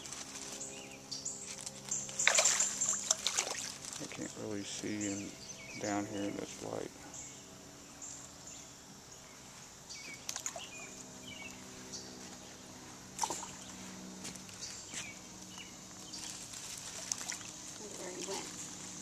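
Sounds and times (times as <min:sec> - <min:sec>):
small water splashes: 0:02.2 - 0:04.1, 0:10.3 - 0:10.7, 0:16.9 - 0:17.7.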